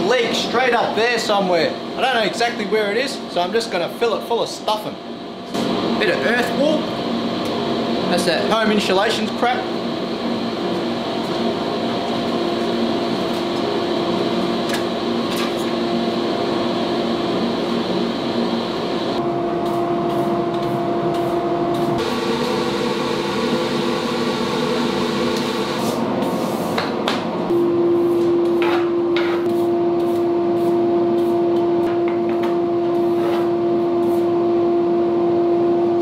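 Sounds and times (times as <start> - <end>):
mechanical hum with hiss: 0.0 - 36.0.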